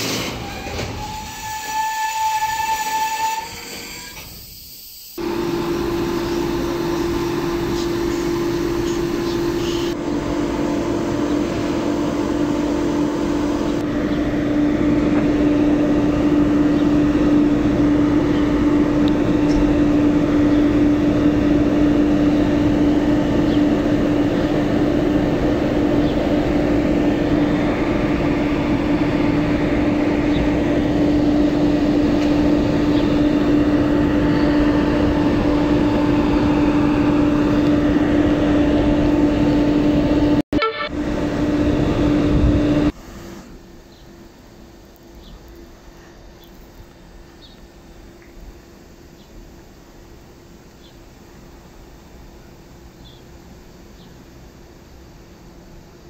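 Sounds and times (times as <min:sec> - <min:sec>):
electric locomotives humming: 0:05.2 - 0:48.9.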